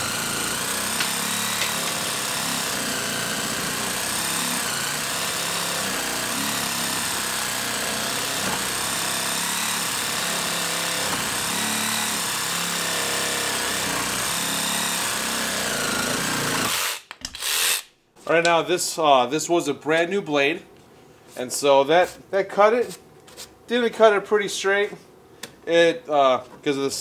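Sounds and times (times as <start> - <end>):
reciprocating saw cutting wood: 0.0 - 17.9.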